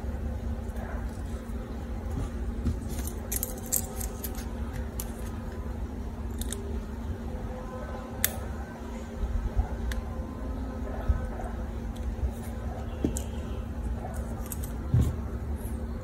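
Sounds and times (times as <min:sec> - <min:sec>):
steady low hum: 0:00.0 - 0:16.0
plastic straw pieces clicking: 0:06.3 - 0:06.7.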